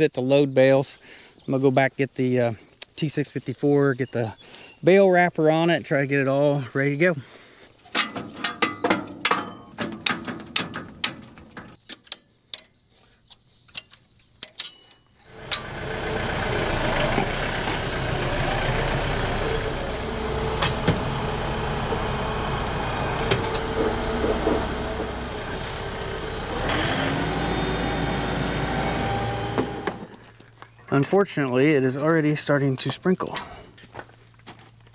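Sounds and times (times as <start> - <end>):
crickets chirping: 0.0 - 26.4, 30.1 - 34.9
sharp clicks and knocks: 7.9 - 15.7
tractor engine running: 8.0 - 11.8, 15.3 - 30.4.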